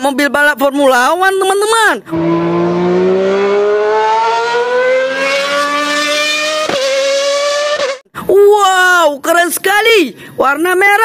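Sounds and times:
race car engine accelerating: 2.1 - 8.0.

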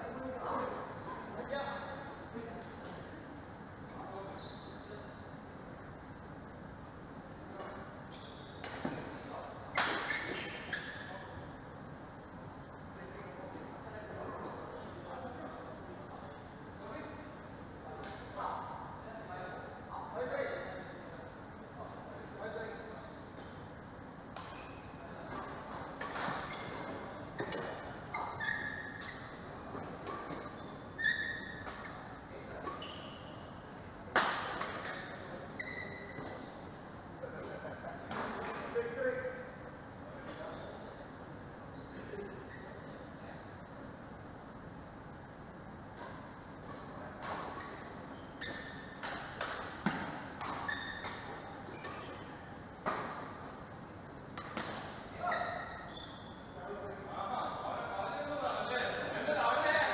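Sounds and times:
shoes squeaking on floor: 2.8 - 4.9, 7.6 - 9.1, 9.7 - 11.4, 24.4 - 33.5, 34.7 - 36.7, 38.2 - 38.9, 41.7 - 42.8, 47.5 - 49.0, 49.8 - 53.2, 54.4 - 56.6
racket hitting shuttlecock: 34.1 - 34.9, 48.8 - 52.0.

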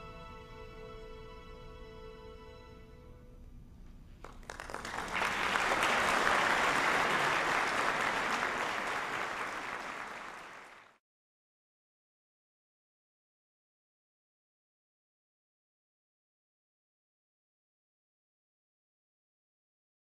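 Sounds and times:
audience applause: 4.2 - 11.0.

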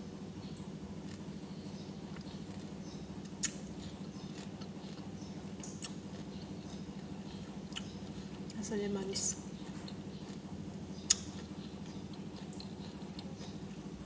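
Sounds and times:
person chewing with wet smacks: 1.0 - 1.3, 2.0 - 8.6, 9.4 - 14.0.

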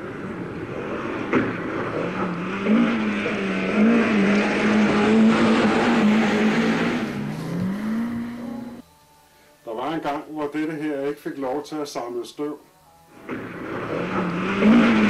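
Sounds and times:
rally car engine at high revs: 0.0 - 8.8, 13.2 - 15.0
steady rushing noise: 0.0 - 8.8, 13.1 - 15.0.

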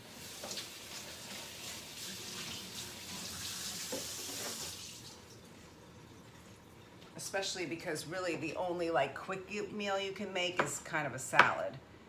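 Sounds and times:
water running from tap: 0.0 - 6.6.

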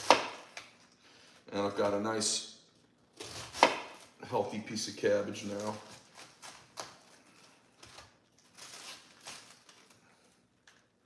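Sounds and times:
cabbage leaves rustling: 5.4 - 9.9.

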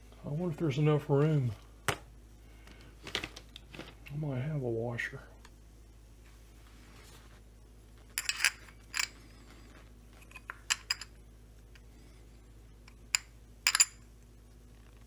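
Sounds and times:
metal washer clinking: 8.2 - 9.2, 10.2 - 11.2, 13.1 - 14.0.

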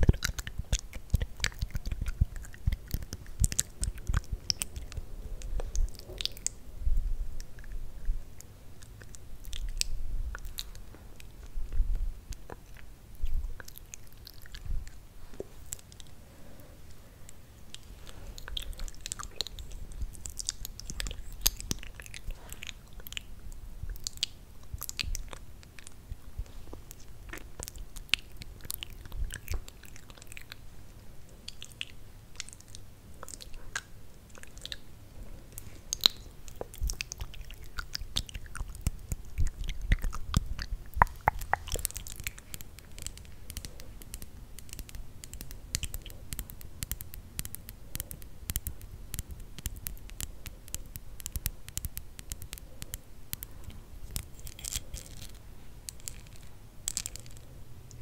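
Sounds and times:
wet lip smacks: 0.0 - 6.6, 17.7 - 23.3, 31.4 - 34.9, 35.6 - 57.4
tongue clicks: 0.0 - 16.2, 17.3 - 30.6, 31.4 - 58.0.

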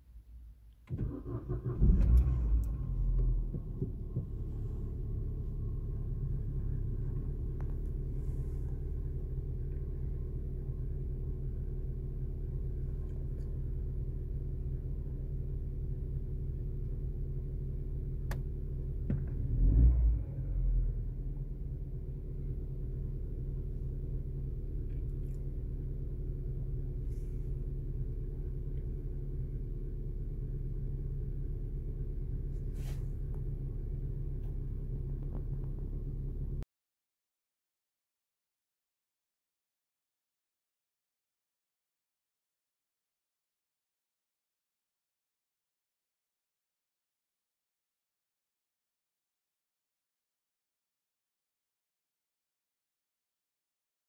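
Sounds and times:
car engine idling: 1.0 - 19.6, 20.4 - 36.6.

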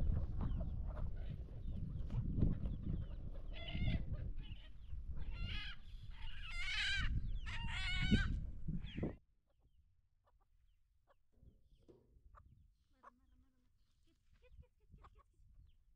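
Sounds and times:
chickens calling: 0.1 - 9.2.

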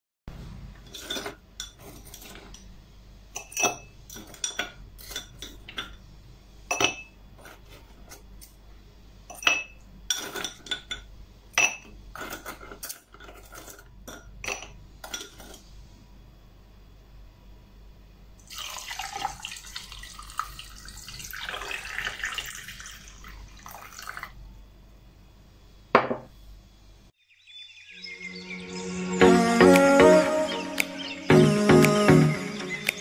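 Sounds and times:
metal tongs clinking against glass: 3.4 - 6.0.

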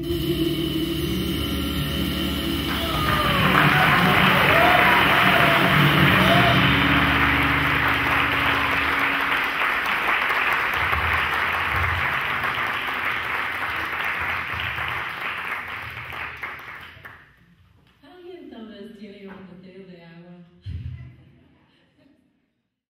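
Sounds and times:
jazz band low notes: 0.0 - 14.0
audience applauding: 2.5 - 17.3.

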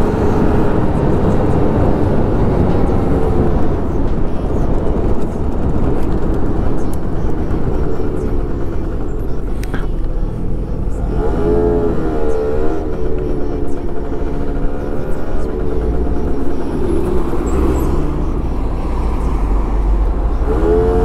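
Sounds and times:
scooter engine running: 0.0 - 21.0
wind and road noise: 0.0 - 21.0.

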